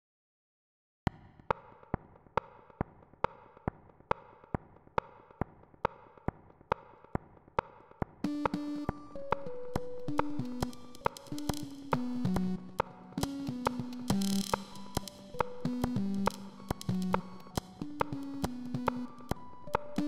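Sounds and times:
synthesizer melody: 8.2s - 20.0s.

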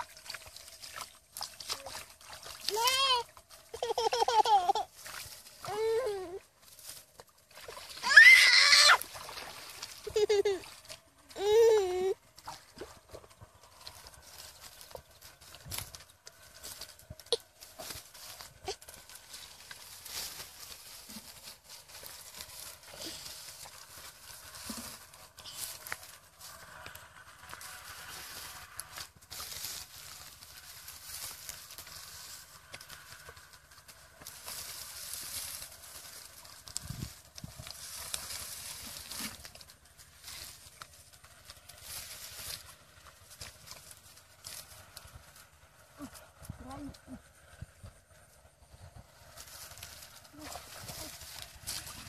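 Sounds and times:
footsteps squelching in mud: 0.0s - 4.1s, 4.8s - 25.2s
feet splashing in muddy water: 0.0s - 17.4s
straw rustling: 0.0s - 47.2s, 48.5s - 52.0s
footsteps crunching on stubble: 0.1s - 46.2s, 48.8s - 52.0s
short pitched cry: 8.0s - 9.0s.

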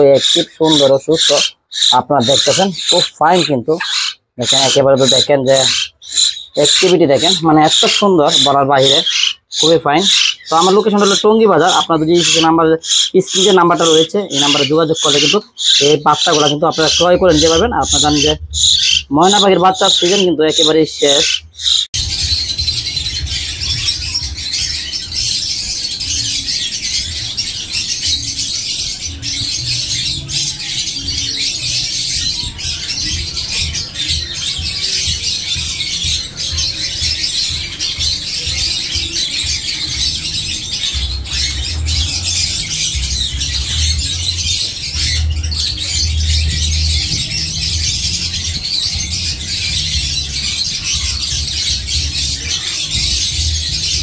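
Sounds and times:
caged birds chirping and squawking: 0.0s - 54.0s
low rumble: 17.2s - 19.1s.

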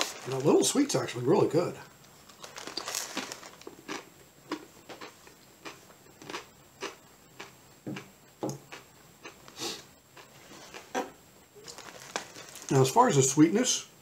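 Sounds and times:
person chewing crunchy chips: 2.2s - 12.8s.

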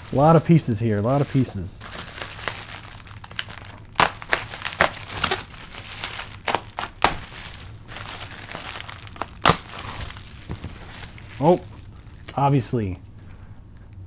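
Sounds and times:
bubble wrap crinkling: 0.0s - 12.9s
bubble wrap clicks: 1.2s - 12.4s.

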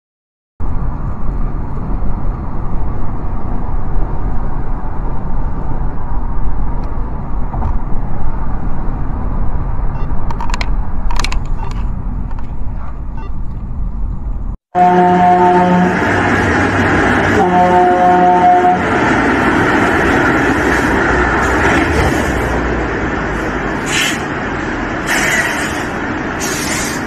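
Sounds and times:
car cabin road rumble: 0.6s - 14.6s.

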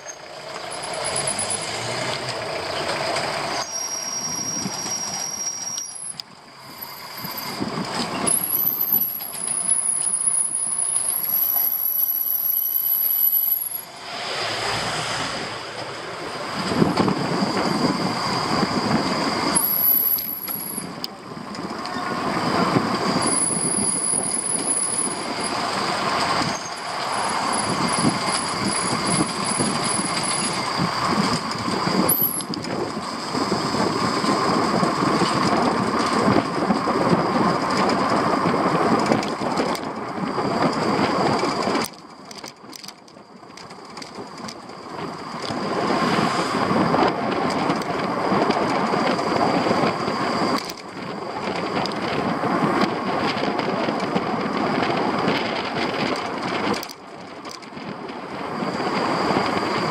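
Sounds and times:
steady high squeal: 0.0s - 39.0s, 44.2s - 56.7s, 57.3s - 59.9s
rattling rumbling road noise: 0.0s - 59.9s.

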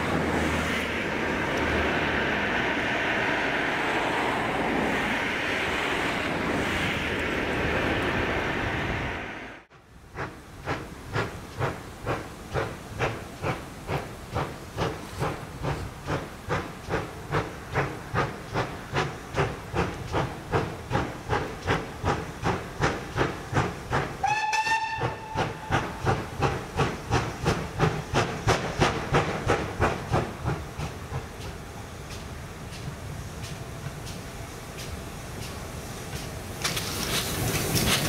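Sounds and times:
steady rushing noise: 0.0s - 24.2s
steam locomotive exhaust beats: 0.0s - 38.0s
steam locomotive whistle blast: 24.2s - 26.0s.

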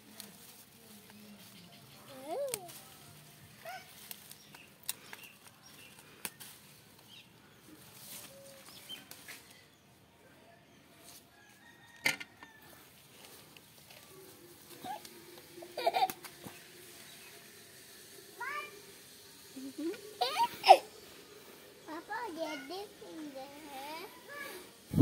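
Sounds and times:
leaves and vines rustling: 0.0s - 9.8s, 12.6s - 25.0s.

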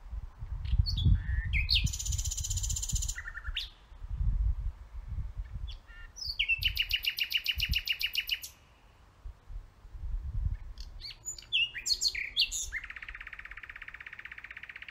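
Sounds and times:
nightingale singing: 0.5s - 4.1s, 5.4s - 9.1s, 10.4s - 14.9s.

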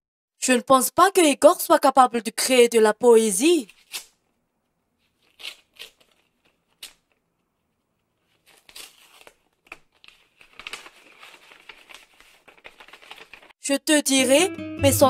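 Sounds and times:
paper rustling and crinkling: 5.0s - 7.2s, 8.0s - 13.6s.

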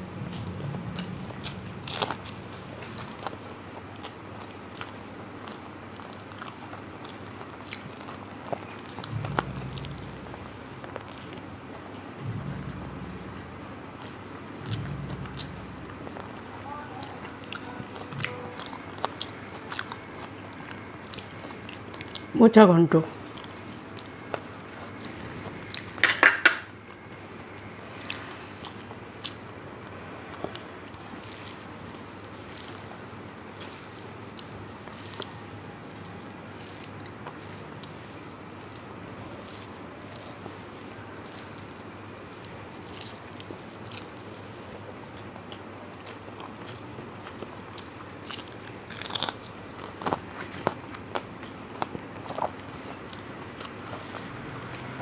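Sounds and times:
person chewing food: 0.0s - 22.3s, 23.1s - 27.1s, 27.9s - 55.0s.

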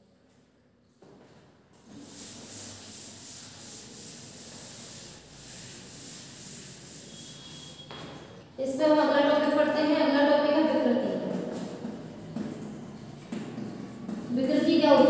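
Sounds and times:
duster rubbing on blackboard: 1.8s - 7.9s.

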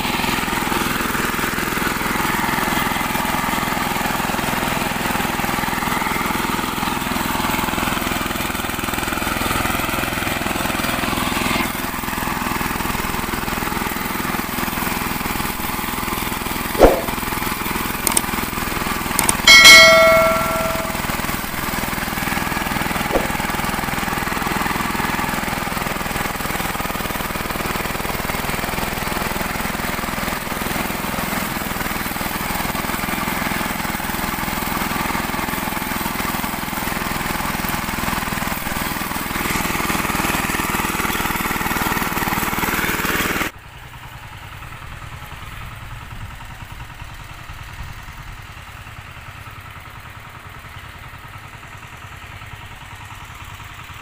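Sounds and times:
diesel tiller engine running: 0.0s - 54.0s
loud metallic ding: 16.8s - 17.3s, 19.2s - 22.4s, 23.1s - 23.6s
sharp knock: 16.8s - 17.3s, 19.2s - 21.2s, 23.2s - 23.4s.

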